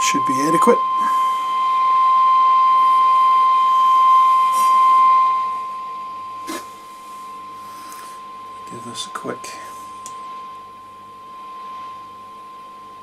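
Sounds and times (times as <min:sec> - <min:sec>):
whistle-like test tone from loudspeaker: 0:00.0 - 0:06.6.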